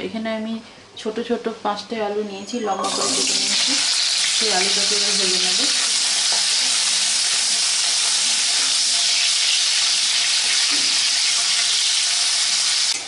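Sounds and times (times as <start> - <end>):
potato wedges sizzling in oil: 2.8 - 13.0.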